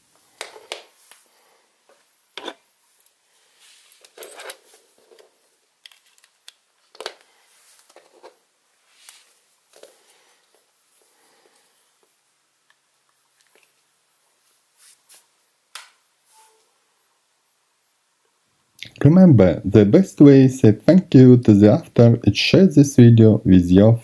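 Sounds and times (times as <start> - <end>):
plastic parts clicking and rustling: 4.0 - 8.4.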